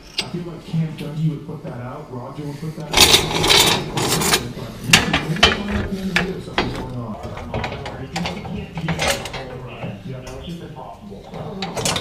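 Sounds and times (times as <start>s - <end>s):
metal springs clicking and clanking: 2.9s - 10.4s, 11.4s - 12.0s.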